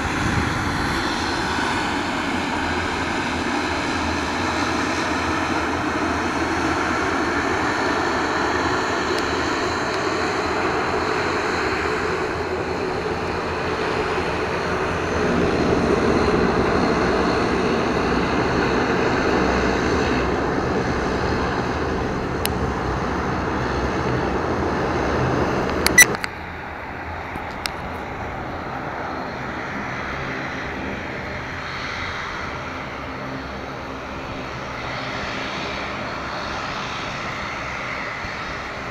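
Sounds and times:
turboprop engines droning: 0.0s - 38.9s
sharp click: 25.8s - 26.3s.

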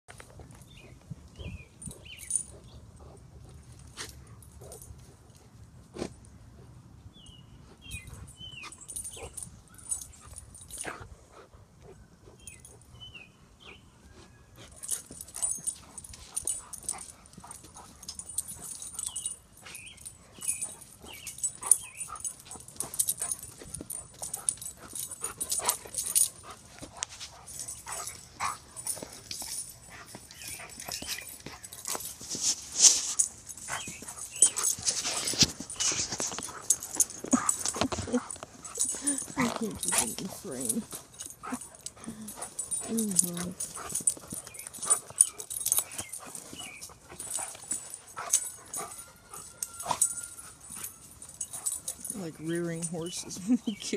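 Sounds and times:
dogs whimpering and yipping: 7.8s - 53.8s
dogs scuffling and rustling: 14.1s - 53.9s.

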